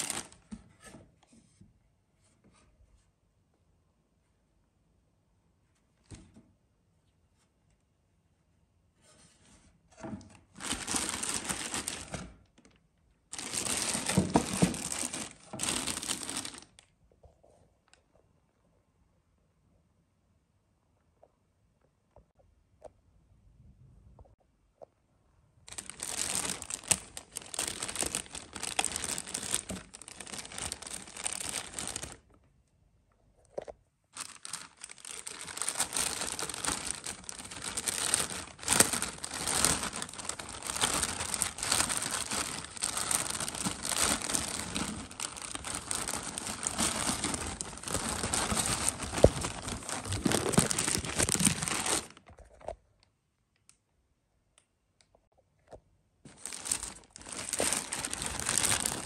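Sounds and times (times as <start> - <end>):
plastic bag crinkling: 0.0 - 0.5, 10.5 - 16.8, 25.7 - 32.4, 34.2 - 52.7, 56.3 - 59.0.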